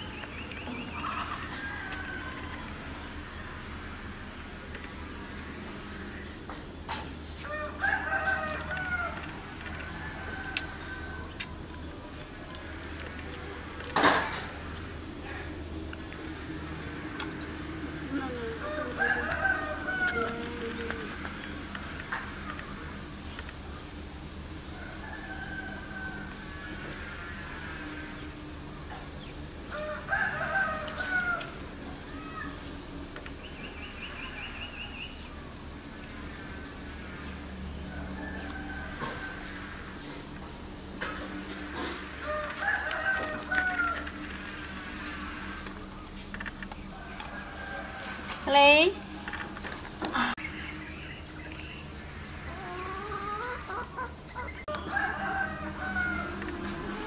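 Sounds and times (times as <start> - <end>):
rooster crowing: 0.9 - 3.7, 7.4 - 11.6, 18.6 - 21.2, 24.7 - 28.3, 29.7 - 32.5, 37.8 - 40.3, 41.0 - 45.6, 46.8 - 48.5, 52.5 - 57.0.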